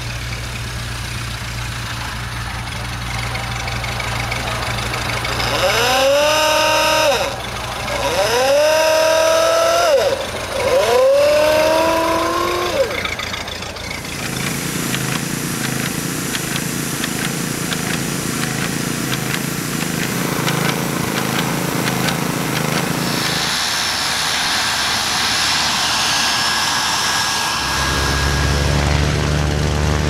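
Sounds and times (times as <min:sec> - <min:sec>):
paint sprayer running: 0:00.0 - 0:30.0
turboprop engine whine: 0:00.0 - 0:30.0
klaxon horn ahooga: 0:02.8 - 0:13.2.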